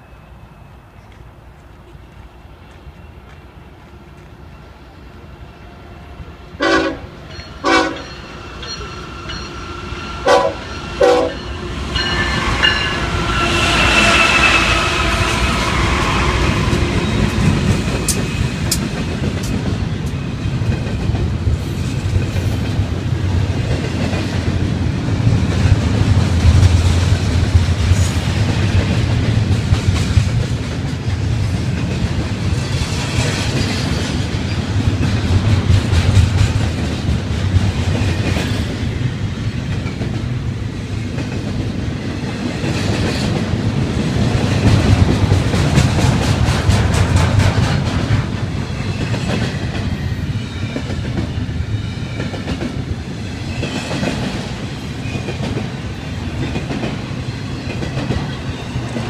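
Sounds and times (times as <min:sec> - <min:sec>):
rail cars clattering: 0:00.0 - 0:59.0
train horn toots: 0:06.6 - 0:08.2, 0:10.2 - 0:16.8.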